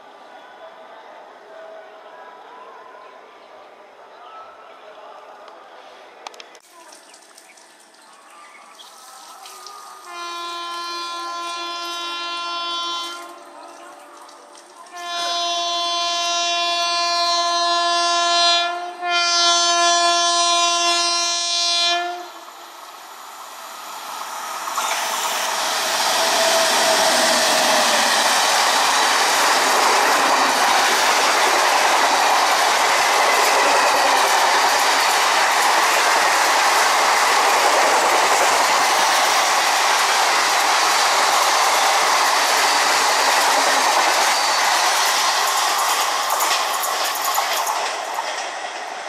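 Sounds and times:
locomotive horn blast: 10.0s - 13.6s, 14.9s - 22.6s
train rushing past: 21.5s - 49.0s.

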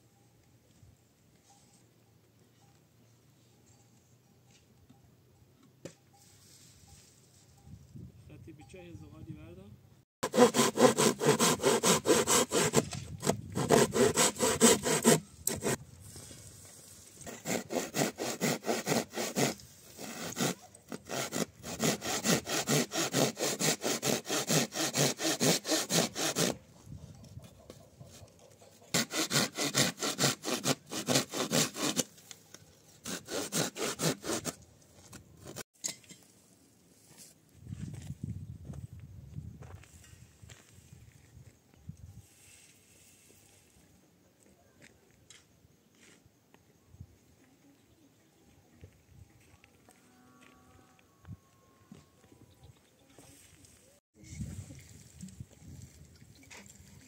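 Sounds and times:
hand tool rasping: 10.2s - 15.8s, 17.2s - 26.6s, 28.9s - 32.1s, 33.0s - 34.6s.

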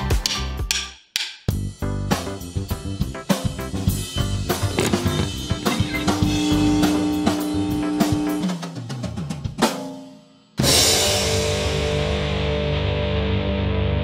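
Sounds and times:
rock drum beat: 1.5s - 12.6s
electric guitar chord ringing: 5.2s - 8.6s.

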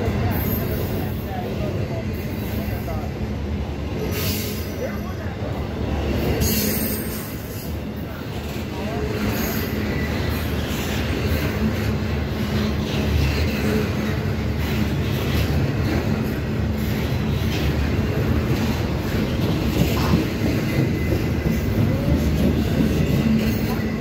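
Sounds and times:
train wheels rumbling on rails: 0.0s - 24.0s
faint high wheel squeal: 0.2s - 1.4s, 4.0s - 8.2s.

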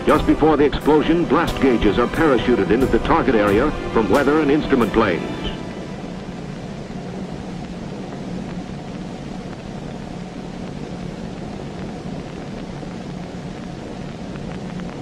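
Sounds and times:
propeller aircraft engines droning: 0.0s - 12.4s
even hiss: 0.0s - 14.1s.

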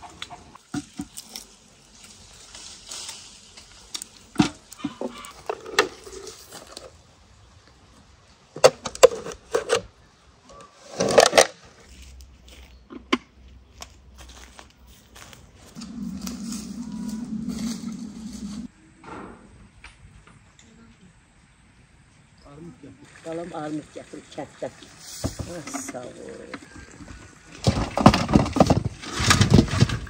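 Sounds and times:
leaves and branches rustling: 0.5s - 8.5s, 13.7s - 18.7s, 24.8s - 30.0s.

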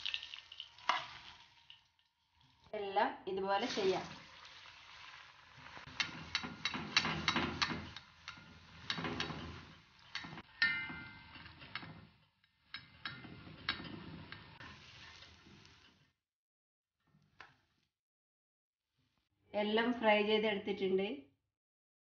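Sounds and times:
hot oil crackling and popping: 0.0s - 2.7s, 3.6s - 16.1s
metal spoon clinking against pan: 5.9s - 11.9s.

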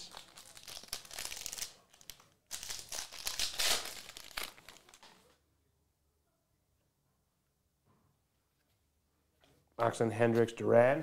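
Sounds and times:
foil wrapper crinkling and tearing: 0.0s - 5.1s.

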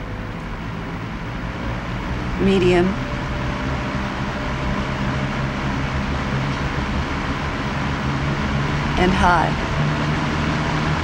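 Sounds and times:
electric fan running: 0.0s - 11.0s.

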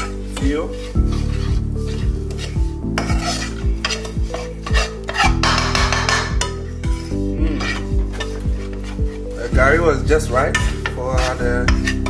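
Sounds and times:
background music with steady beat: 0.0s - 12.0s
metal spoon scraping frying pan: 0.0s - 12.0s.

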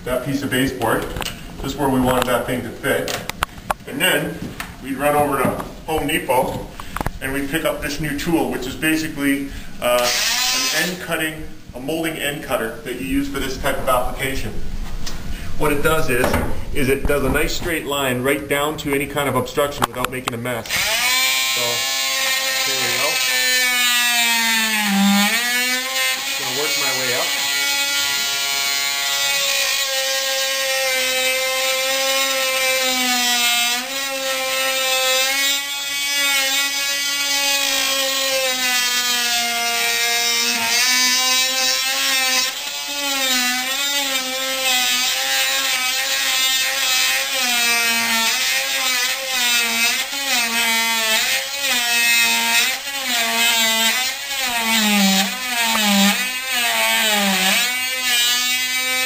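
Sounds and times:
oscillating multi-tool cutting wood: 10.0s - 11.0s, 20.6s - 59.0s.

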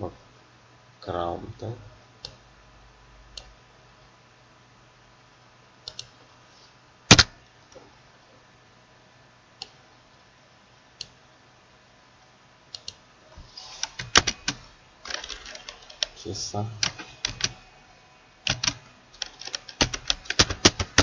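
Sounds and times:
keyboard keystrokes: 7.1s - 7.3s, 13.9s - 16.1s, 16.8s - 17.6s, 18.5s - 21.0s.

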